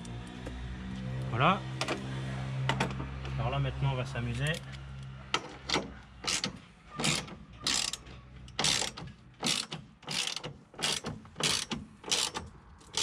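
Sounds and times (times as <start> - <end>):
ratchet wrench clicking: 6.2 - 13.0.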